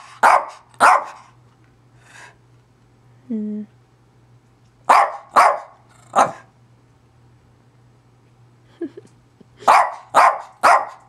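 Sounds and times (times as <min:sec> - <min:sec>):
dog barking: 0:00.2 - 0:01.2, 0:04.9 - 0:06.5, 0:09.6 - 0:11.0.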